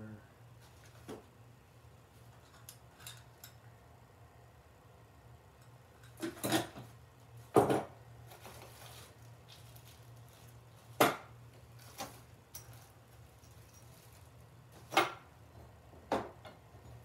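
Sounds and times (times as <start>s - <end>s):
bags of parts rustling and clattering: 8.2s - 11.0s, 11.6s - 15.2s.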